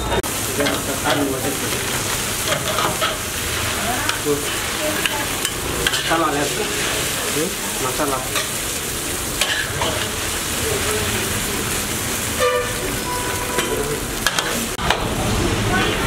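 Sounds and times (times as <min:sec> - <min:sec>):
noodles sizzling in a wok: 0:00.2 - 0:16.0
metal spatulas scraping a wok: 0:00.6 - 0:07.2, 0:09.4 - 0:10.3.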